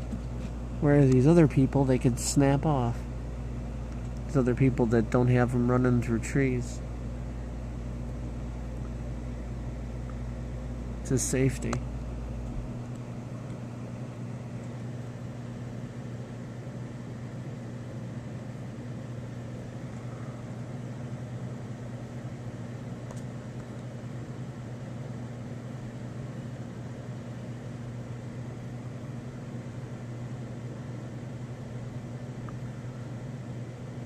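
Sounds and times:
constant low hum: 0:00.0 - 0:34.0.

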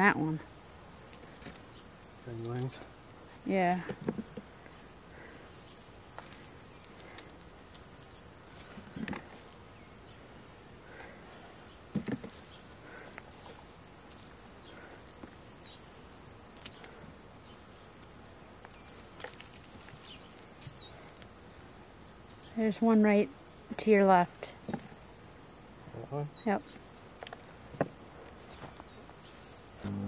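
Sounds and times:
crickets droning: 0:00.0 - 0:30.0
soft thumps: 0:11.9 - 0:12.6.

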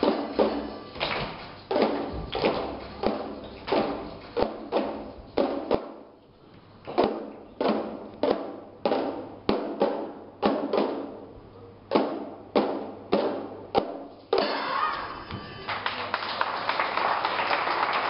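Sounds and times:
plastic tubes struck together: 0:00.0 - 0:06.0, 0:06.9 - 0:11.2, 0:11.9 - 0:14.5.

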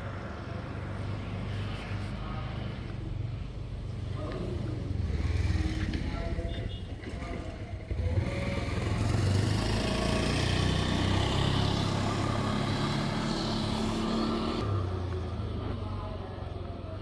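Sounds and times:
vehicle passing by: 0:07.8 - 0:15.1.

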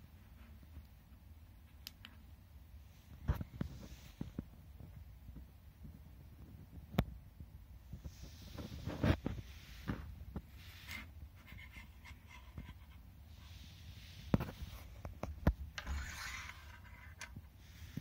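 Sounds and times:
soft rustle: 0:00.0 - 0:18.0.

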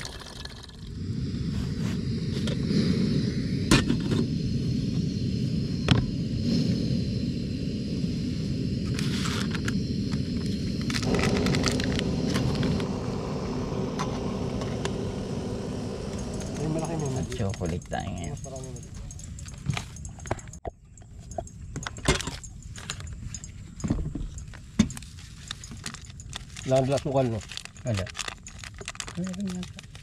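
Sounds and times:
gas stove flame roar: 0:00.0 - 0:20.6, 0:25.6 - 0:30.0
sharp clicks: 0:17.4 - 0:25.0.

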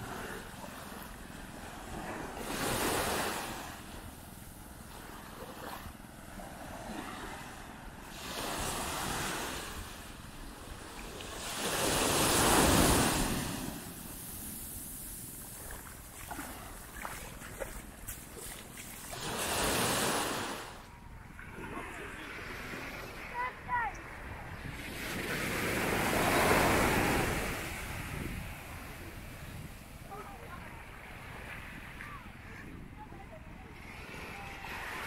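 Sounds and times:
waves breaking on sand: 0:00.0 - 0:04.1, 0:04.9 - 0:33.0
wind on microphone: 0:23.4 - 0:35.0.

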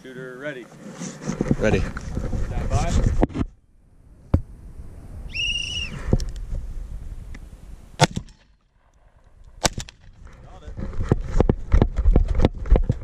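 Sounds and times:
shotgun shot: 0:08.0 - 0:08.5, 0:09.6 - 0:10.1.

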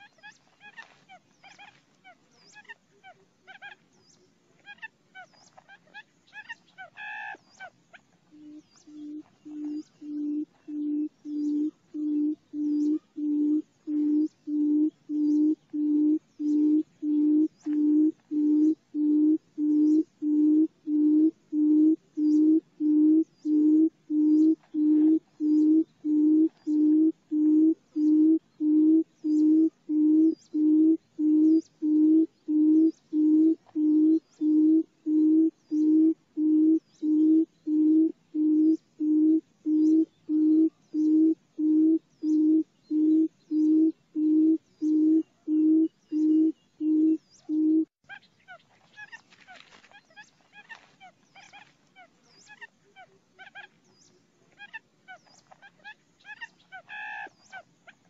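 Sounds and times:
bird's low hooting call: 0:06.3 - 0:49.2.

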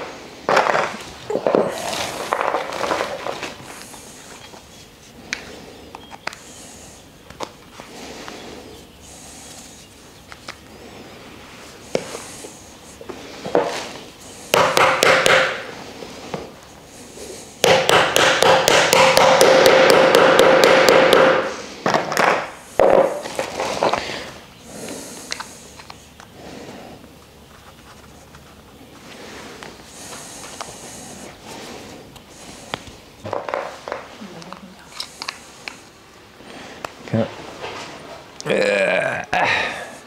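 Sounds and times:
faint clicks of wooden pieces: 0:05.3 - 0:06.5, 0:10.2 - 0:10.7, 0:21.8 - 0:26.4, 0:32.1 - 0:35.9
hammer striking wood: 0:14.5 - 0:15.7, 0:17.6 - 0:23.2.

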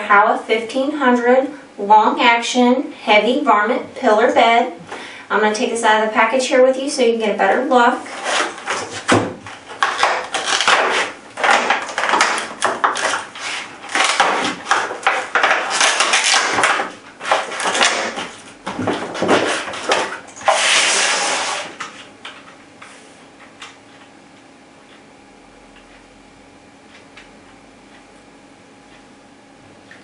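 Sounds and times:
plastic packaging crinkling: 0:09.6 - 0:18.3.

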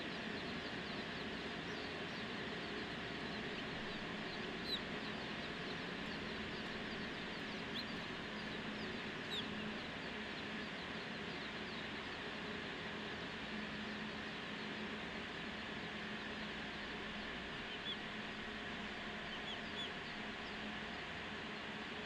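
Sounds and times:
chicks peeping: 0:00.0 - 0:21.2
steady low hum: 0:00.0 - 0:22.0
loud single chick peeps: 0:00.9 - 0:09.9, 0:17.6 - 0:18.0, 0:19.2 - 0:20.6.

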